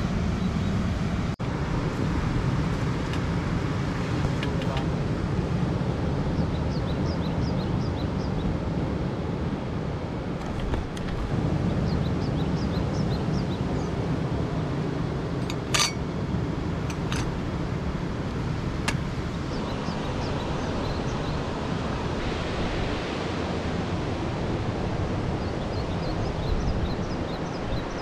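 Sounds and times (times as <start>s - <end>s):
wind: 0.0s - 28.0s
metal parts clinking: 15.4s - 16.0s, 16.9s - 17.3s
surf: 17.4s - 28.0s.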